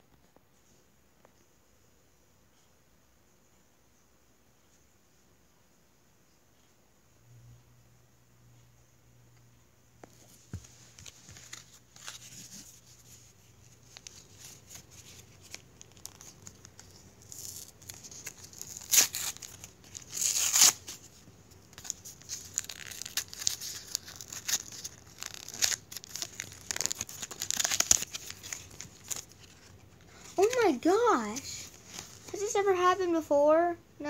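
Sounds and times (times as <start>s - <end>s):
packaging crinkling: 13.7s - 32.5s
blister packaging tearing: 13.8s - 21.1s, 21.8s - 30.7s.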